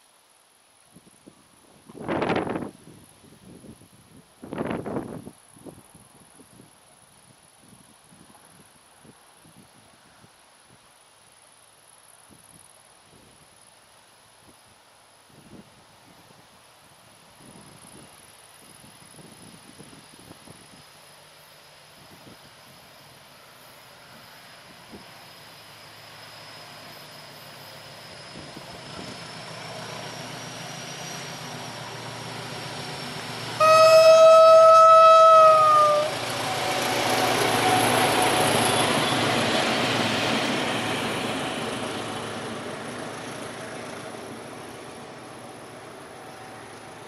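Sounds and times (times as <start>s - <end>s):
diesel locomotive engine: 7.1s - 47.0s
train wheel noise: 17.0s - 47.0s
locomotive horn blast: 33.6s - 38.2s.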